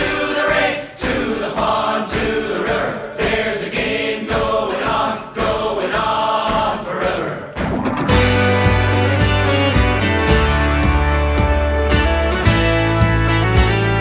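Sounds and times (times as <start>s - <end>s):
voices singing wordless chorus: 0.0s - 7.7s
steady beat: 0.0s - 12.7s.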